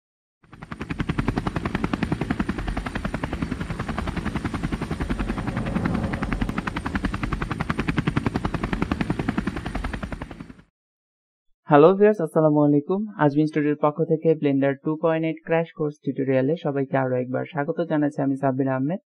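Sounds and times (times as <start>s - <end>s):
propeller aircraft engine drone: 0.4s - 10.7s.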